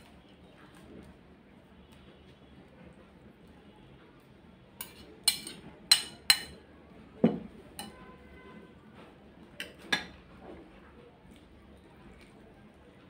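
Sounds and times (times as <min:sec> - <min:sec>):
metal spoon clinking on plates: 0:04.8 - 0:06.6, 0:07.2 - 0:08.0.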